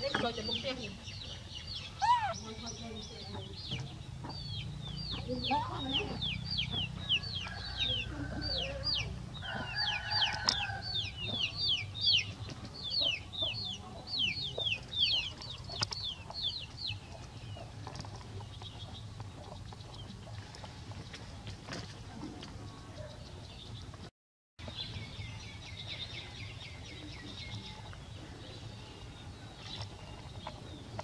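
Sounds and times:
chicks peeping: 0:00.1 - 0:21.4.

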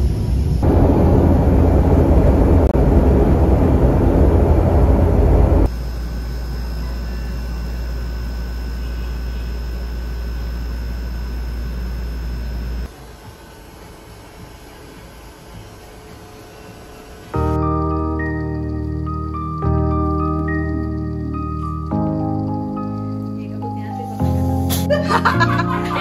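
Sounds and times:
plane engine rumble in cabin: 0:00.0 - 0:13.0
steady hum with high whine: 0:00.0 - 0:23.6.

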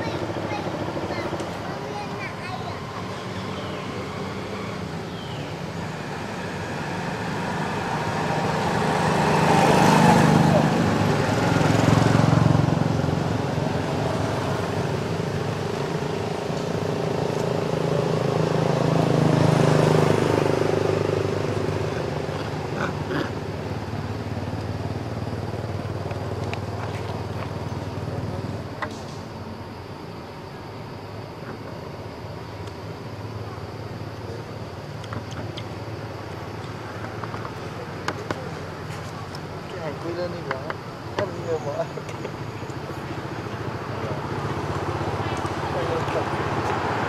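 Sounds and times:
vehicle engine passing by: 0:03.0 - 0:28.7, 0:42.8 - 0:47.0.

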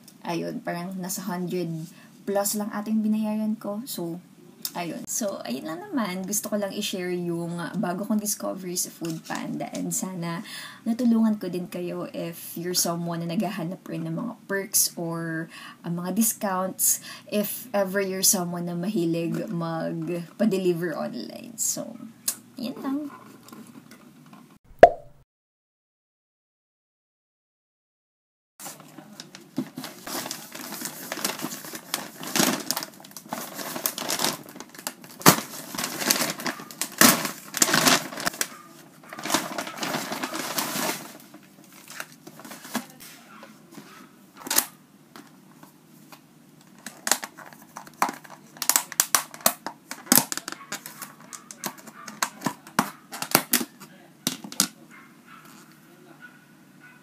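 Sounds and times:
paper bag crinkling: 0:28.6 - 0:43.1.

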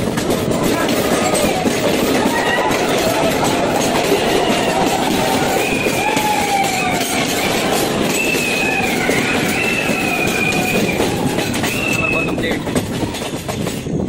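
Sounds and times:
train wheels rumbling on rails: 0:00.0 - 0:14.0
high wheel squeal: 0:04.0 - 0:12.6.

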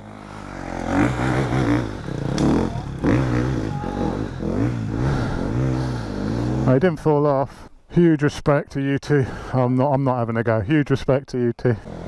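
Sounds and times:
dirt bike engine revving: 0:00.0 - 0:06.9, 0:11.8 - 0:12.0.

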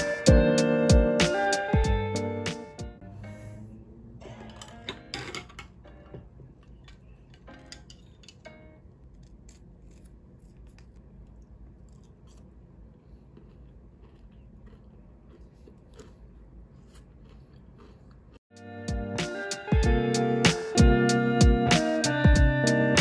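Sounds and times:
background music: 0:00.0 - 0:06.3, 0:18.5 - 0:23.0.

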